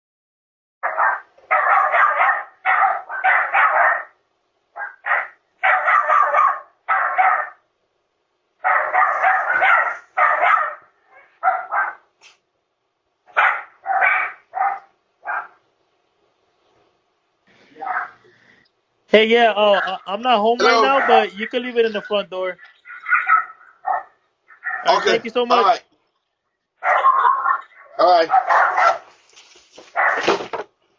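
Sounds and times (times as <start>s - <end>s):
dog barking: 0.8s - 7.6s, 8.6s - 12.1s, 13.3s - 15.6s, 17.8s - 18.2s, 20.7s - 21.3s, 22.8s - 25.2s, 26.8s - 29.1s, 29.9s - 30.4s.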